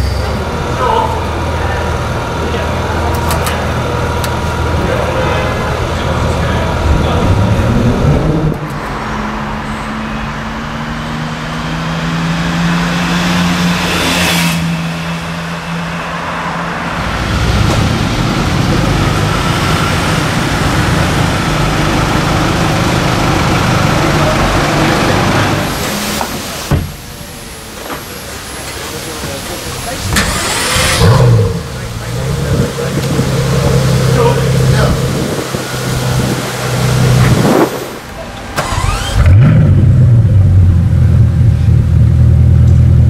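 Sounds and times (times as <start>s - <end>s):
flat-six engine low rumble: 0.0s - 9.4s, 26.9s - 43.0s
car engines idling: 0.0s - 43.0s.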